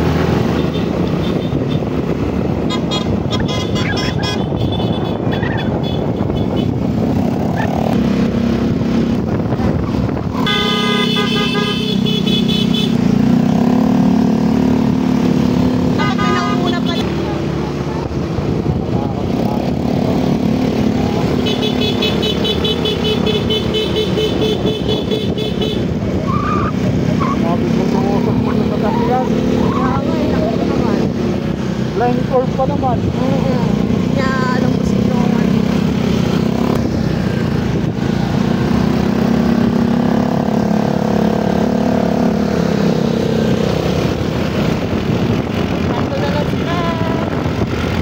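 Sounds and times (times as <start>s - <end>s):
wind on microphone: 0.0s - 10.5s, 43.1s - 48.0s
road noise: 0.0s - 48.0s
scooter engines running: 0.0s - 48.0s.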